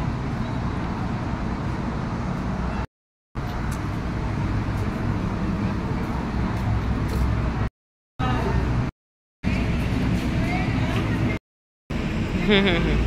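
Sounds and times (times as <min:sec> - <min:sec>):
outdoor background rumble: 0:00.0 - 0:13.0.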